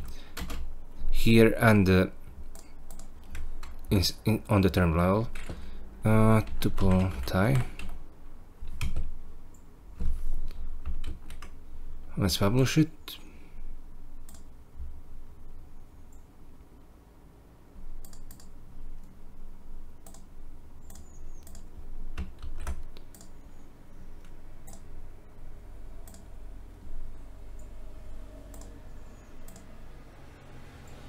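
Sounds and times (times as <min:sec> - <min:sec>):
keyboard and mouse clicks: 0:02.5 - 0:03.9, 0:14.2 - 0:14.5, 0:18.0 - 0:19.2, 0:20.0 - 0:23.4, 0:24.2 - 0:24.9, 0:26.0 - 0:26.3, 0:28.5 - 0:28.8, 0:29.4 - 0:29.7.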